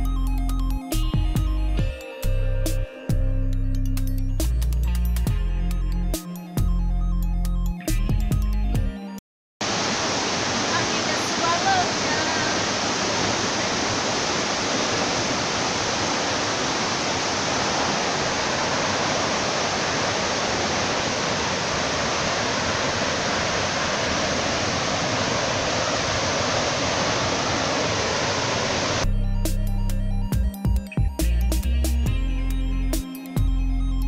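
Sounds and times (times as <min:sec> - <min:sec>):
waterfall rushing: 0:09.6 - 0:29.0.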